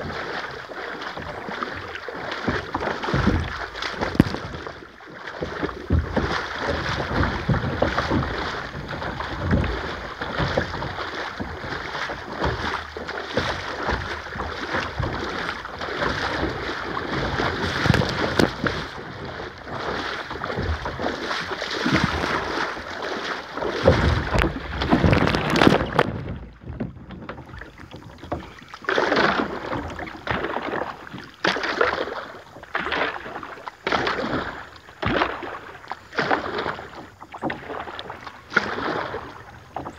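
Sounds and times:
paddle splashes: 0.0 - 39.9.

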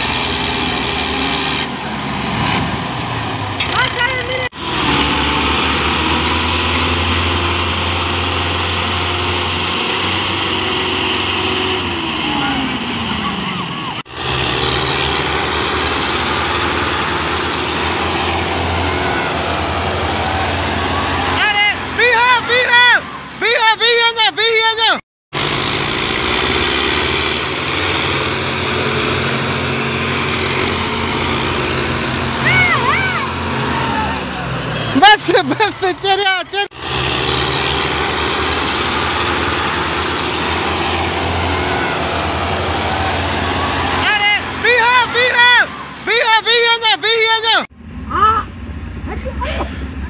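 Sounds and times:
tractor diesel engines droning: 0.0 - 50.0.

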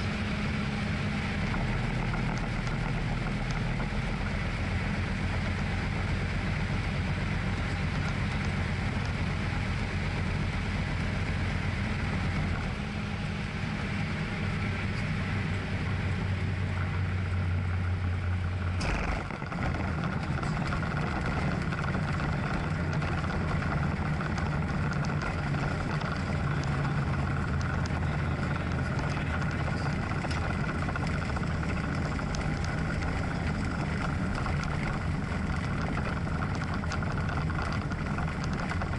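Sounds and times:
aircraft engine and propeller droning: 0.0 - 38.9.

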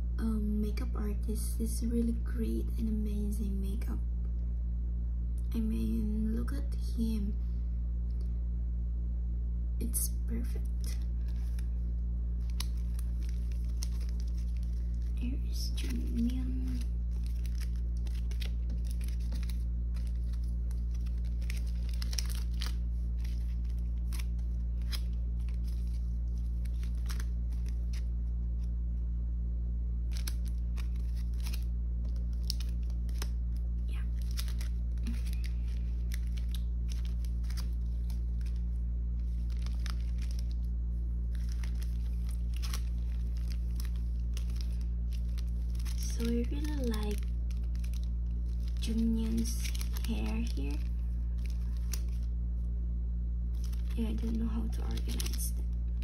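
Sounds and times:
low hum: 0.0 - 56.0
plastic sleeves rustling and crinkling: 10.4 - 28.7, 30.0 - 52.7, 53.5 - 56.0.

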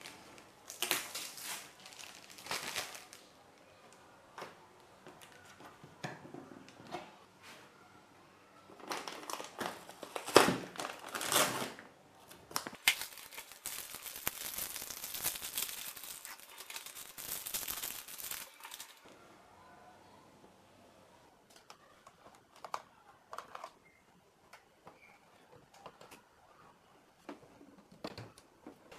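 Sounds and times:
plastic bags crinkling: 0.0 - 3.4, 8.8 - 19.1.

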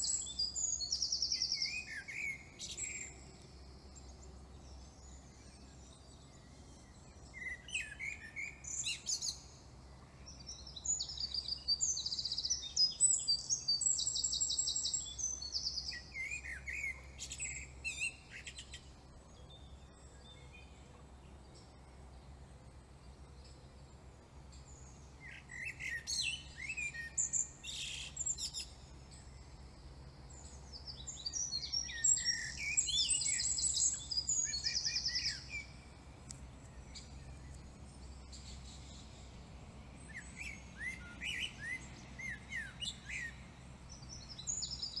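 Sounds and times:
songbirds chirping: 0.0 - 45.0
low steady hum: 13.7 - 45.0.

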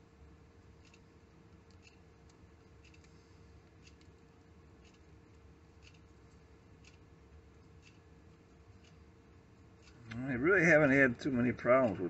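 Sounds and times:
faint ticks: 0.8 - 8.1.

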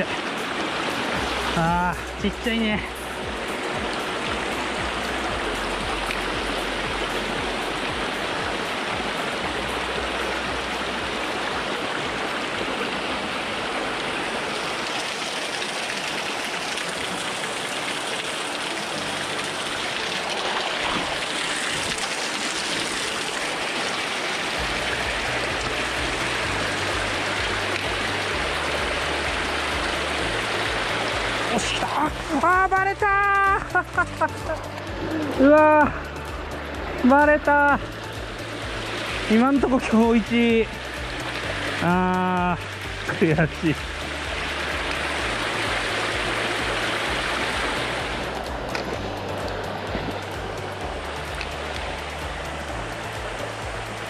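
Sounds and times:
stream rushing over rocks: 0.0 - 54.0.

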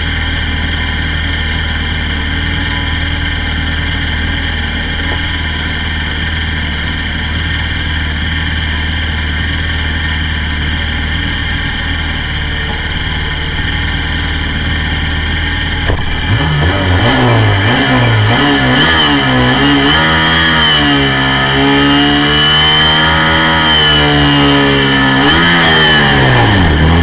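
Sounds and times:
motorcycle engine idling: 0.0 - 19.6.

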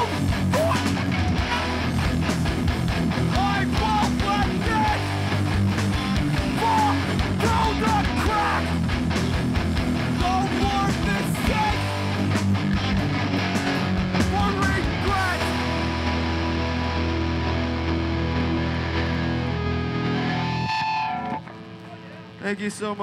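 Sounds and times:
punk band playing: 0.0 - 23.0.

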